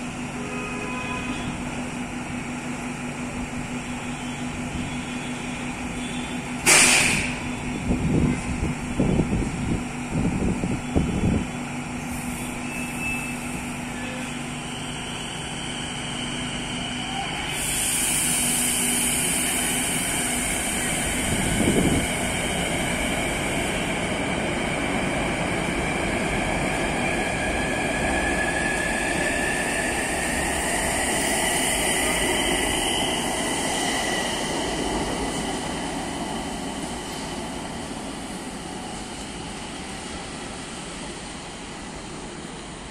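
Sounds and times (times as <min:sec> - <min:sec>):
electric train whine: 0:00.0 - 0:42.9
wheels rumbling on rail: 0:00.0 - 0:42.9.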